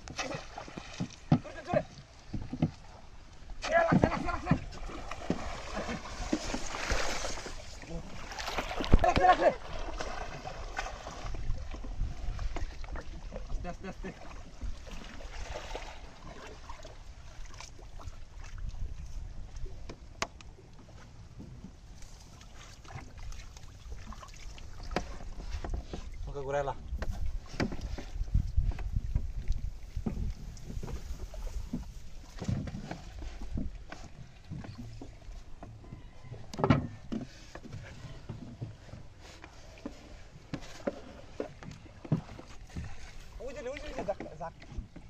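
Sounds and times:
water trickling and splashing: 0.0s - 45.0s
knocks on wooden boat: 1.0s - 2.8s.

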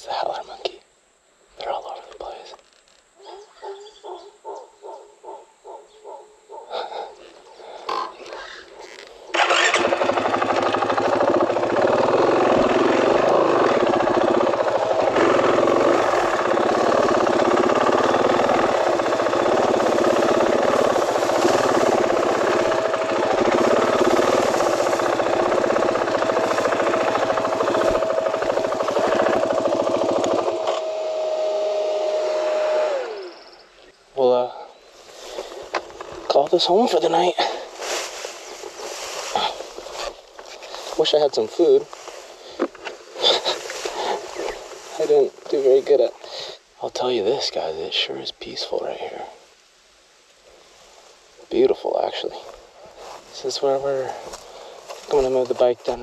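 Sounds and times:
motorcycle engine running: 9.3s - 33.3s.

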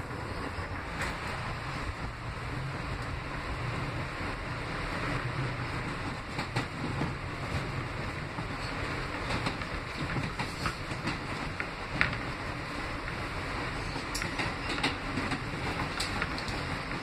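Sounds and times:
subway car running noise: 0.0s - 17.0s
wheels clicking over rail joints: 4.3s - 17.0s.

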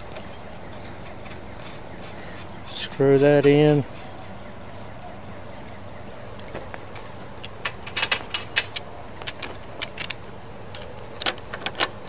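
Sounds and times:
metallic clicks of valve parts: 7.4s - 12.0s.

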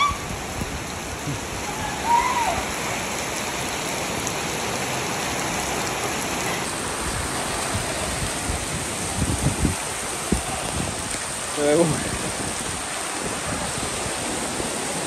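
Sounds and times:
heavy rain on a wet street: 0.0s - 15.0s.

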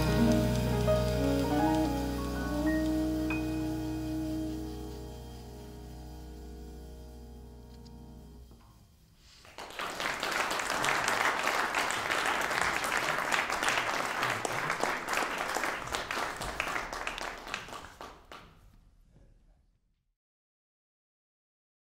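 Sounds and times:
audience applauding: 0.0s - 3.0s, 9.3s - 18.7s.

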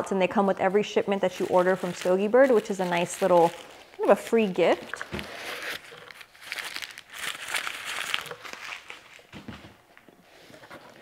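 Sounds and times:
tissue paper crinkling: 1.0s - 9.4s.

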